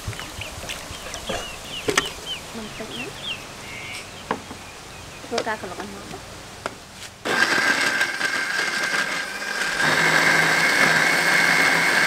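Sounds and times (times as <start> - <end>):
blender motor whining: 7.2 - 12.0.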